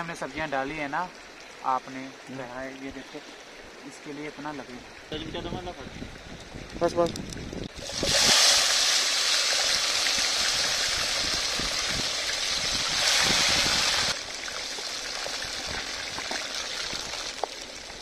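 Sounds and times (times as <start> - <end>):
potatoes sizzling in oil: 7.7 - 18.0.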